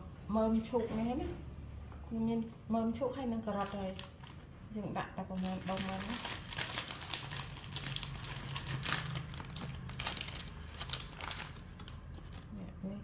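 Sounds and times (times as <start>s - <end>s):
plastic packet crinkling: 3.4s - 4.5s, 5.3s - 12.6s.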